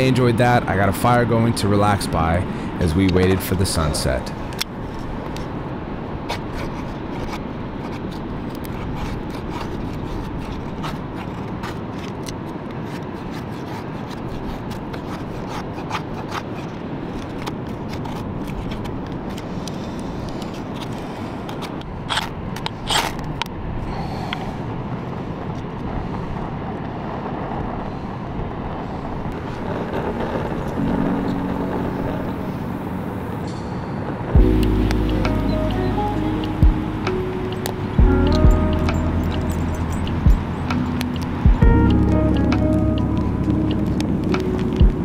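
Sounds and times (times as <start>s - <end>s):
steady rushing background noise: 0.0s - 45.0s
knife scraping wooden stick: 6.3s - 16.8s.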